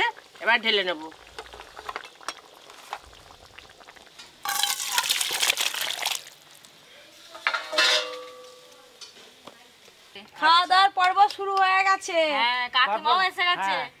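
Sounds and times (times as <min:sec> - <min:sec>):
curry sloshing from metal pot: 0:00.2 - 0:06.4
metal clank ringing: 0:07.6 - 0:08.8.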